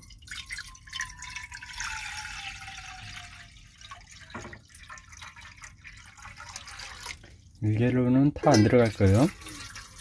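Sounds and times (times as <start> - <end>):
water pouring into metal saucepan: 0.0 - 10.0
knock: 4.3 - 4.6.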